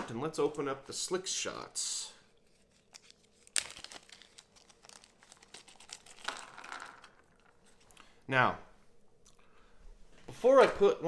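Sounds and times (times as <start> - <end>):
plastic bag crinkling: 2.5 - 7.9.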